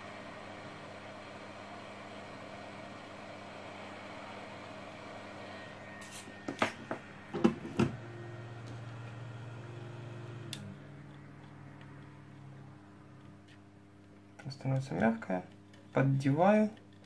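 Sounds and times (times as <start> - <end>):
low steady hum: 0.0 - 17.0
hot-air gun blowing hiss: 6.0 - 6.7.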